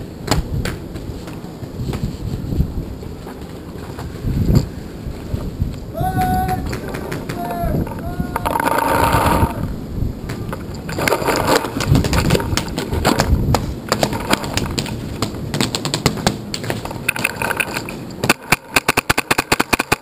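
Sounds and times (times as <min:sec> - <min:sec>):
rapid paintball shots: 0:11.0 - 0:20.0
paintball markers firing: 0:11.5 - 0:20.0.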